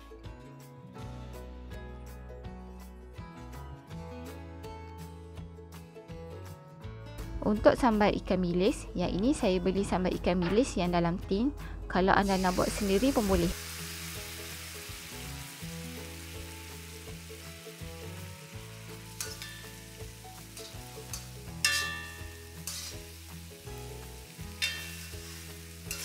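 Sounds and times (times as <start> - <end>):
food sizzling in a wok: 12.2 - 26.0
spatula clanking on wok: 19.0 - 23.2, 24.5 - 26.0.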